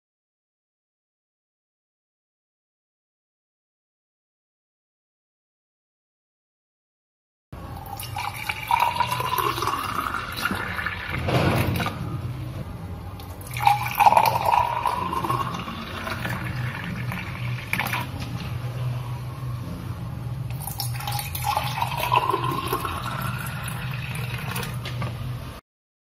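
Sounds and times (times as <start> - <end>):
steady low hum: 7.6 - 25.6
liquid pouring into glass: 7.8 - 11.9, 13.2 - 18.5, 20.5 - 24.8.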